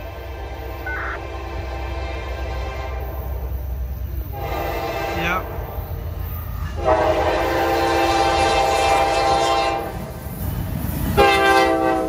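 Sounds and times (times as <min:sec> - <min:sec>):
locomotive air horn blasts: 0:00.9 - 0:03.3, 0:04.3 - 0:05.5, 0:06.8 - 0:09.9, 0:11.2 - 0:12.0.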